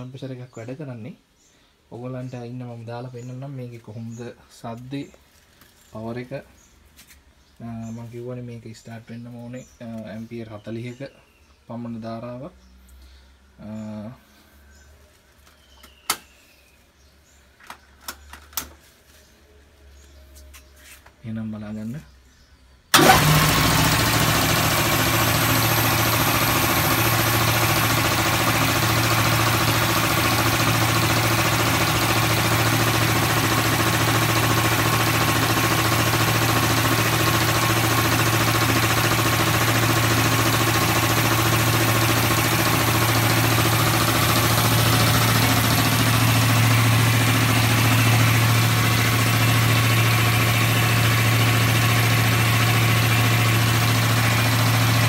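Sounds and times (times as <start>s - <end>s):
air compressor running with low hum: 23.0s - 55.0s.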